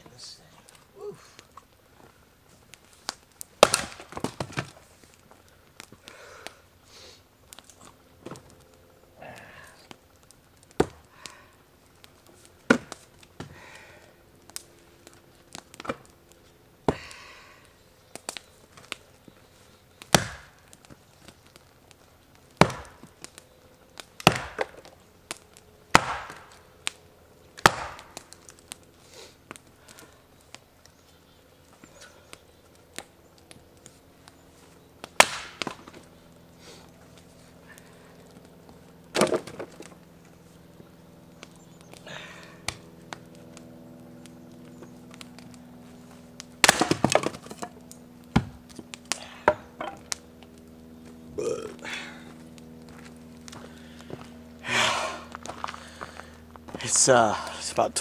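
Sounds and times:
split wood pieces falling: 3.0s - 4.8s, 12.6s - 13.6s, 15.5s - 16.1s, 20.0s - 21.4s, 24.0s - 26.6s, 35.0s - 36.1s, 39.1s - 40.0s, 46.6s - 50.6s
axe splitting firewood: 3.1s - 4.8s, 10.7s - 11.4s, 12.6s - 13.9s, 15.5s - 16.1s, 20.0s - 21.4s, 22.5s - 23.4s, 24.0s - 27.0s, 27.6s - 28.4s, 35.0s - 36.1s, 39.1s - 40.0s, 46.6s - 50.2s.

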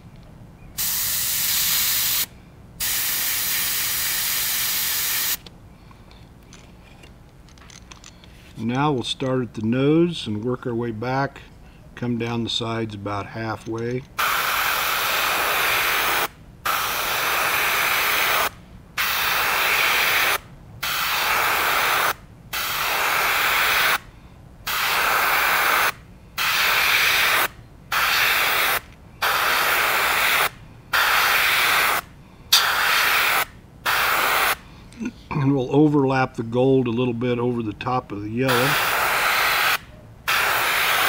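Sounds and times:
airbrush hissing: 0.8s - 5.4s, 14.2s - 24.0s, 24.7s - 34.6s, 38.5s - 41.0s.

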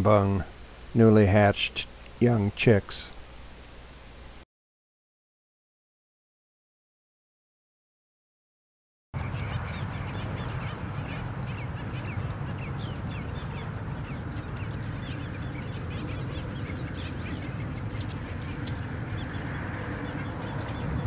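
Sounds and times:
low steady rumble: 9.2s - 21.0s
seabird colony yelping: 9.2s - 21.0s.

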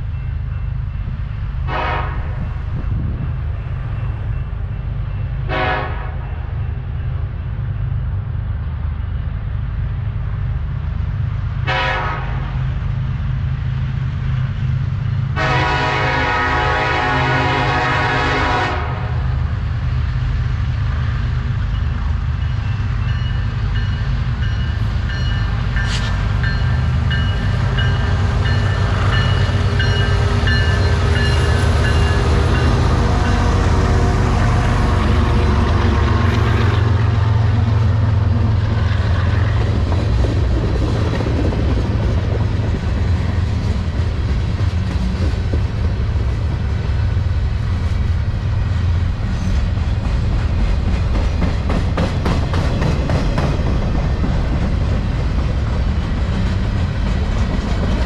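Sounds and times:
locomotive air horn blasts: 1.7s - 2.4s, 5.5s - 6.1s, 11.7s - 12.4s, 15.4s - 19.2s
diesel engines rumbling: 12.5s - 58.0s.

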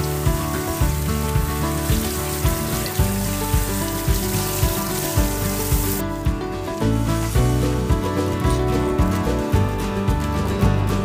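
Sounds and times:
shower head spraying water: 0.0s - 6.0s, 7.0s - 7.8s
background music with a beat: 0.0s - 11.0s.

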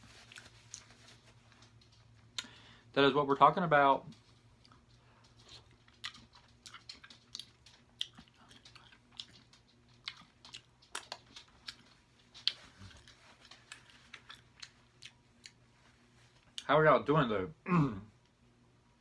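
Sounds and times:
faint low hum: 0.0s - 19.0s
mouth chewing clicks and smacks: 4.2s - 15.6s.

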